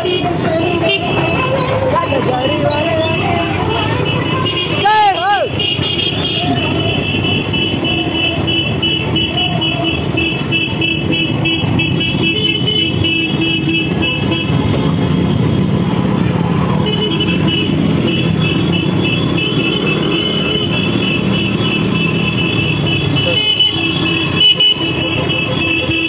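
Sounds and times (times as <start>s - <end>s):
motorcycle engines running: 0.0s - 26.0s
motorcycle horn blasts: 16.8s - 26.0s.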